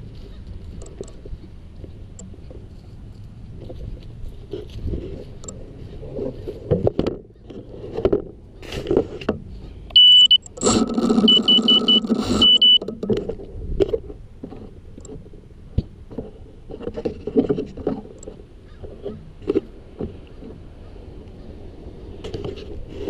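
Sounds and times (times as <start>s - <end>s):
drone beeper beeps: 10.0s - 12.9s.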